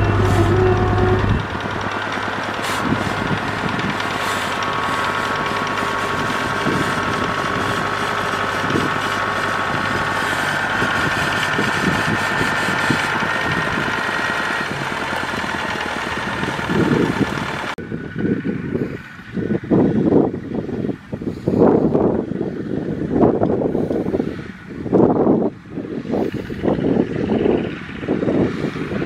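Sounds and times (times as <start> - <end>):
machinery high whine: 0.0 - 19.7
combine harvester running: 0.0 - 29.0
wind gusts on microphone: 2.8 - 14.8, 15.4 - 29.0.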